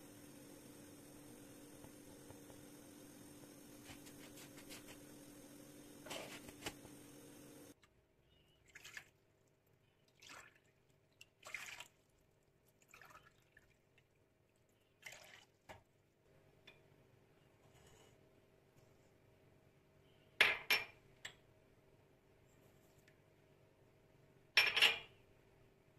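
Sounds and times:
steady hum: 0.0s - 7.8s.

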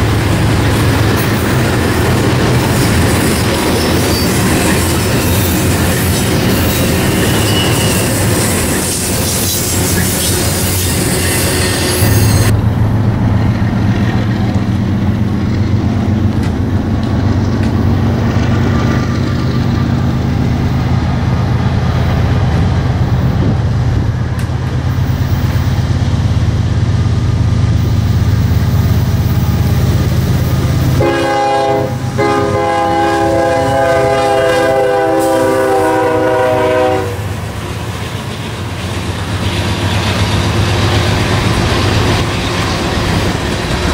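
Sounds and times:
diesel locomotive drone: 0.0s - 43.9s
freight cars wheel and rail noise: 0.0s - 43.9s
locomotive air horn chord: 30.9s - 37.3s.

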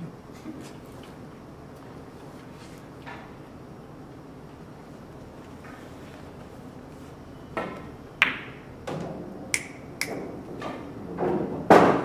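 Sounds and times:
pool balls clicking: 7.5s - 12.0s
cue tip striking ball: 8.2s - 10.4s.

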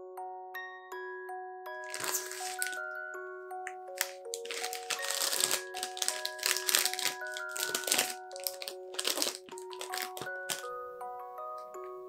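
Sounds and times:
background music with bell notes: 0.0s - 12.0s
plastic bag crinkling: 1.9s - 2.9s, 3.9s - 10.7s.

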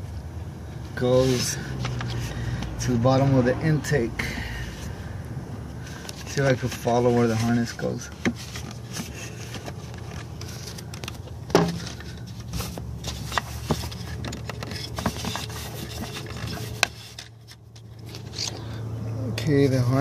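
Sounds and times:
steady low hum: 0.0s - 19.9s
hands scraping plastic parts: 5.9s - 18.7s.

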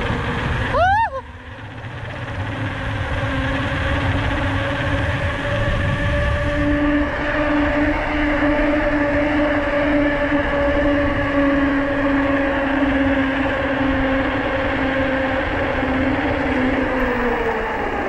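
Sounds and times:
bike humming whine: 0.0s - 18.0s
wind rush on microphone: 0.0s - 18.0s.

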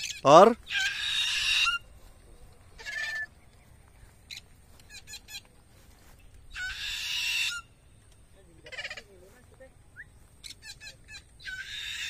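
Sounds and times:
parakeet screeching: 0.0s - 1.8s, 2.8s - 3.3s, 6.5s - 7.7s, 10.4s - 12.0s.

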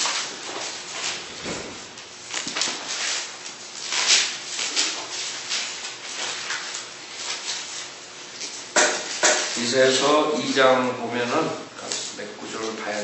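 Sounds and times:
paper pages rustling: 0.0s - 9.6s.

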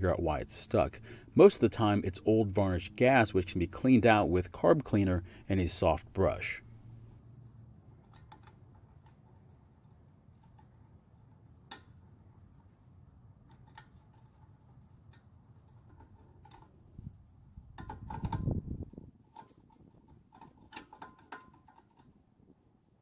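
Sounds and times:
small metallic clicks: 8.0s - 10.8s, 19.3s - 22.2s.

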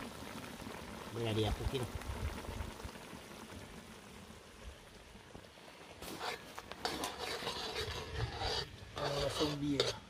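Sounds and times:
spoon scraping a metal pot: 6.0s - 10.0s.

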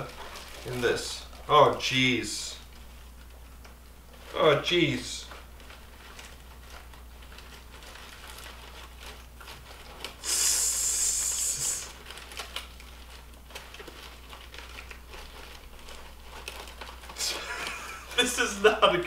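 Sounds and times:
bag crinkling: 0.0s - 19.0s
dry bark crackling: 0.0s - 19.0s.

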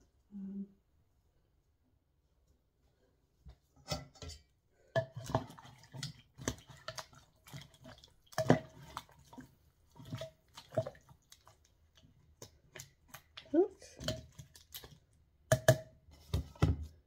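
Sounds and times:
wet sloshing stew: 3.8s - 17.0s.

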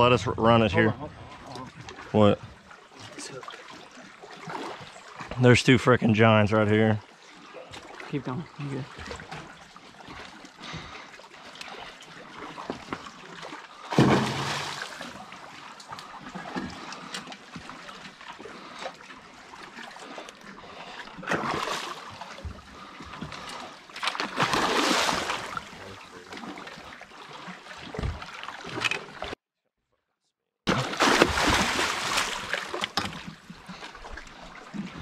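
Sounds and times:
fish thrashing splashes: 13.8s - 15.2s, 20.8s - 22.9s, 23.5s - 25.8s, 30.7s - 33.2s.

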